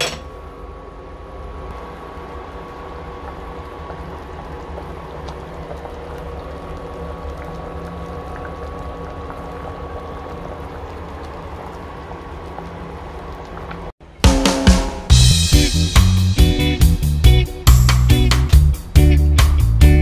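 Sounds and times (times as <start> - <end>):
faint steady hum: 0.0 - 14.0
soup bubbling at a boil: 1.7 - 14.0
drum-led music: 14.0 - 20.0.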